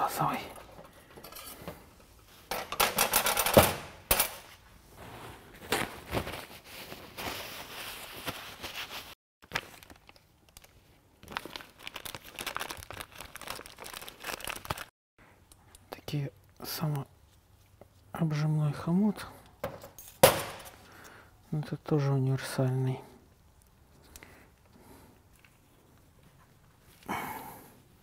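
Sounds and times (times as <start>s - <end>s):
tools and metal parts clattering: 0.5s - 1.8s, 2.5s - 4.6s
soft rustling and handling: 4.4s - 11.6s, 15.3s - 21.7s, 22.4s - 27.1s.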